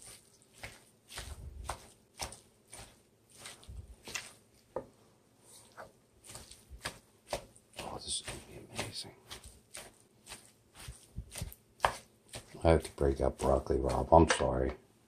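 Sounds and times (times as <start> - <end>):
utensils knocking and clicking: 14.1 - 14.7.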